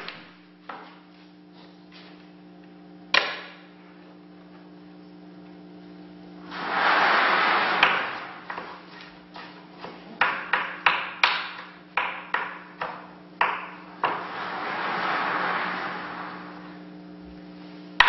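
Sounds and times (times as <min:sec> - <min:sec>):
steady low hum: 0:00.0 - 0:18.0
rushing hiss: 0:06.4 - 0:08.6, 0:14.0 - 0:16.9.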